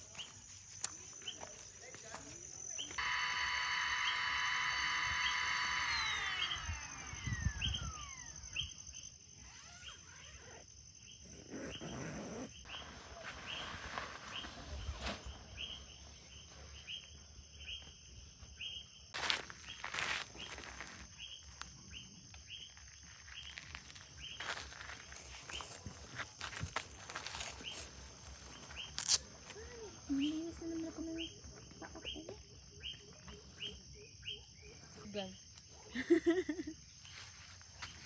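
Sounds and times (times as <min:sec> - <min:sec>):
loud insect drone: 0:02.6 - 0:10.7.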